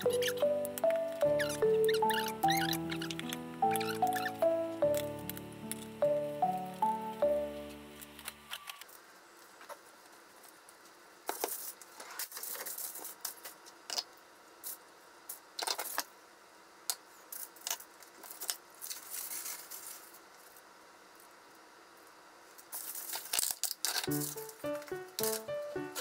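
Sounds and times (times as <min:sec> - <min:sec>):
background music: 0:00.0 - 0:08.5, 0:24.1 - 0:26.0
aluminium foil crinkling: 0:09.9 - 0:14.0, 0:17.3 - 0:21.4, 0:22.5 - 0:26.0.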